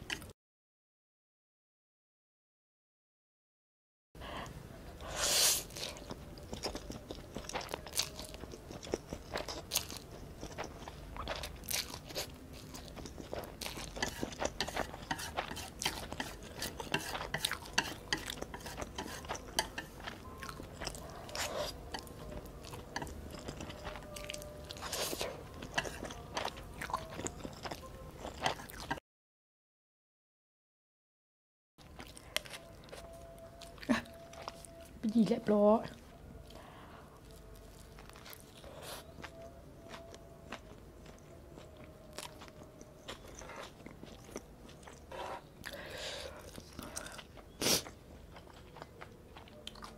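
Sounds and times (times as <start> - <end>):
close chewing with mouth clicks: 5.0 - 29.0, 31.8 - 35.3, 35.9 - 49.9
chopsticks tapping and scraping plate: 14.0 - 20.1, 25.7 - 26.2.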